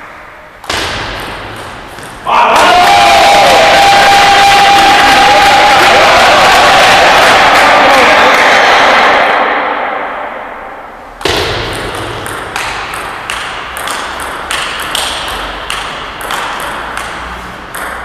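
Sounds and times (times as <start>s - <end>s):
table tennis ball hits: 0.6s - 3.6s, 11.2s - 18.0s
loud noise: 2.2s - 12.2s.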